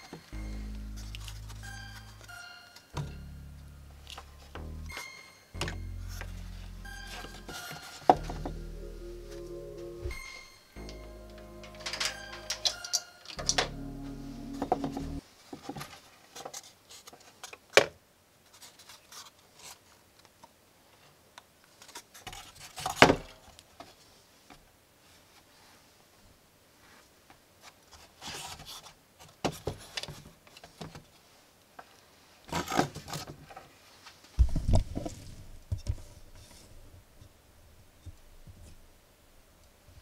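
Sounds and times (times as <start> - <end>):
low thump: 3.0 - 5.0, 5.6 - 8.7.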